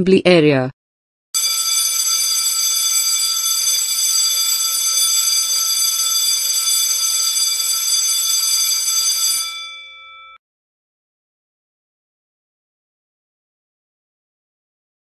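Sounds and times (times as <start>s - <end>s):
school bell ringing: 1.4s - 10.4s.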